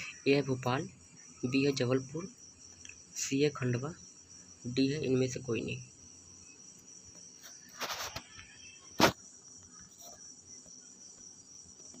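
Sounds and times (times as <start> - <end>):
insect chirring: 0.0 - 12.0
brief rustle: 7.4 - 9.2.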